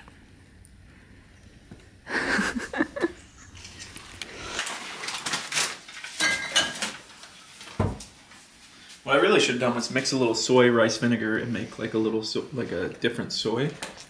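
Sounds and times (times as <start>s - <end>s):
utensils clinking on ceramic plate: 6.1s - 7.0s.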